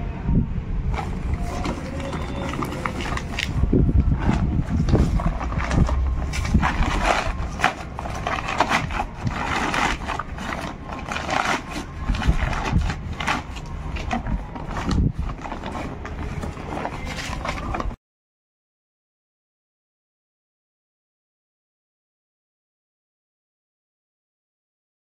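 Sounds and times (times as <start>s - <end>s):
plastic sack rustling and crinkling: 0.9s - 18.0s.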